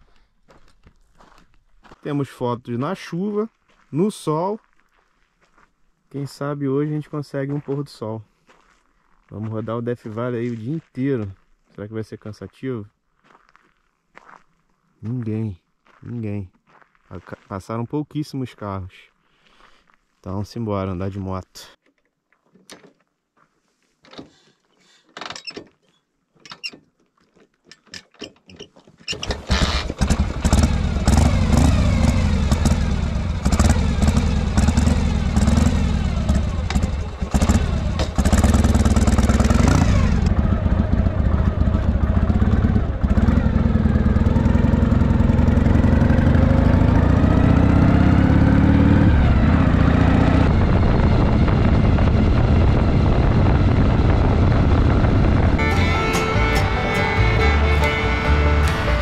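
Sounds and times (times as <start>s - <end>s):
clicks and knocks: 25.1s - 29.2s
motorcycle engine idling: 29.5s - 46.2s
motorcycle accelerating through gears: 29.5s - 55.7s.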